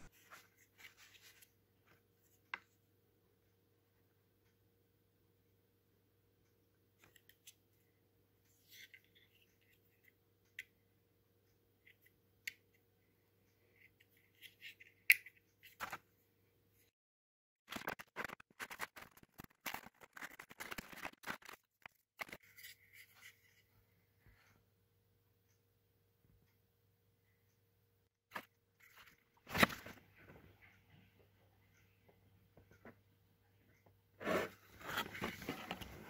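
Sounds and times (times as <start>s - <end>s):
packaging crinkling: 17.7s - 22.4s.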